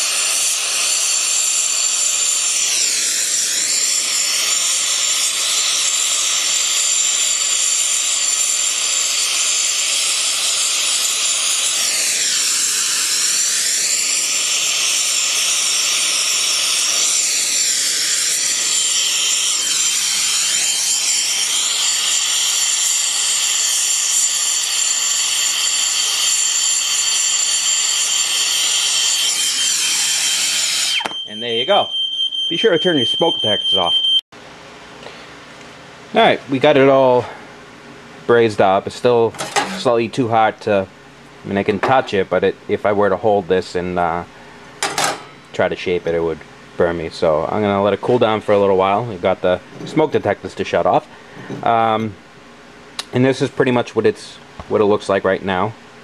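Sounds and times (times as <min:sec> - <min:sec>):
gas torch flame hissing: 0:00.0 - 0:29.3.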